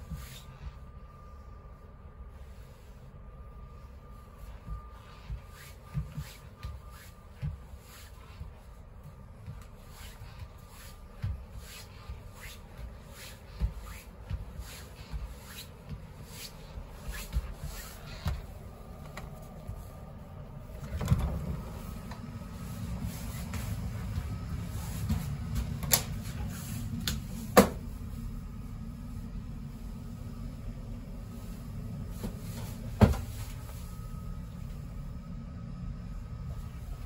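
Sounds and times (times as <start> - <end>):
footsteps walking: 4.3 - 27.0.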